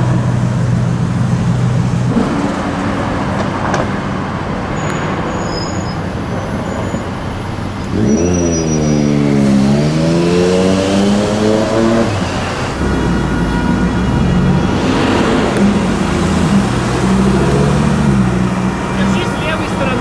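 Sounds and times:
steady engine hum: 0.0s - 4.7s, 9.2s - 20.0s
engine revving: 7.8s - 20.0s.

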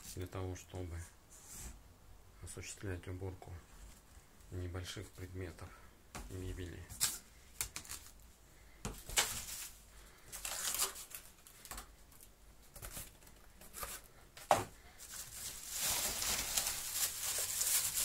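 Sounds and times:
plastic bag crinkling: 9.1s - 11.7s, 15.0s - 18.0s.

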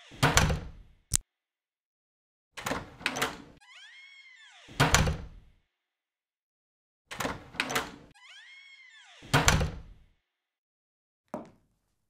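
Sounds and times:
door creaking on hinges: 7.1s - 9.9s.

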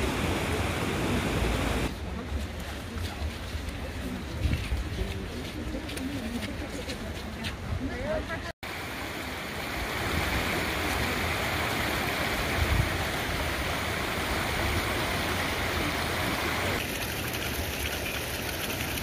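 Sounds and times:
hissy rush of hot spring water: 0.0s - 1.9s, 8.6s - 19.0s
stream running over stones: 0.0s - 5.9s, 8.6s - 19.0s.

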